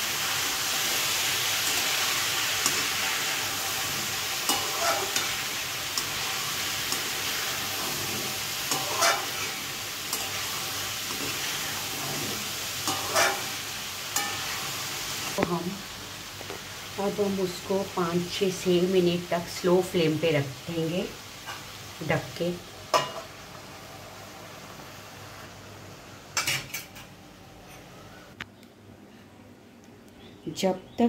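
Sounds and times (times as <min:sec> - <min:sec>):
food sizzling in oil: 0:00.0 - 0:27.0
metal spatula scraping pan: 0:04.5 - 0:05.4, 0:06.0 - 0:13.6.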